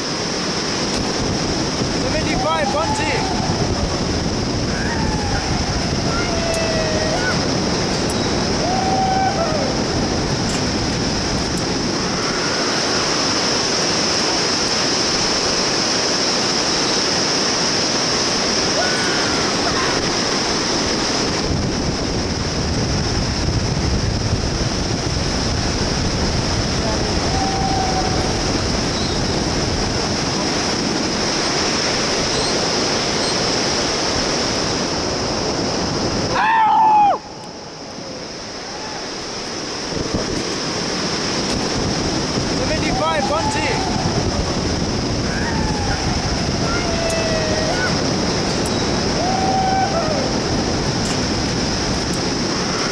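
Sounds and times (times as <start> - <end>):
river rapids roaring: 0.0 - 52.9
person yelling: 2.1 - 4.0, 4.7 - 7.5, 42.6 - 44.4, 45.2 - 48.1.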